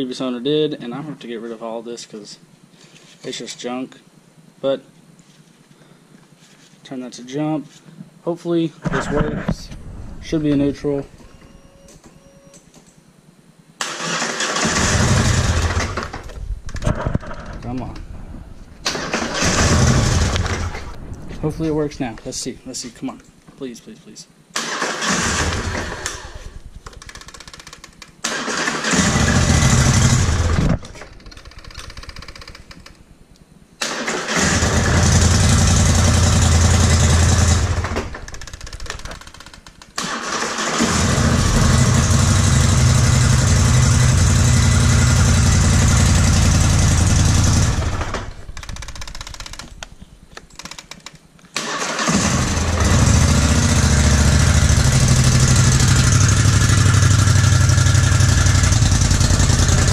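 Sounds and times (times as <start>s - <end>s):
atv engine cranking: 13.8s - 18.0s, 18.8s - 20.9s, 24.6s - 33.0s, 33.8s - 49.9s, 50.5s - 59.9s.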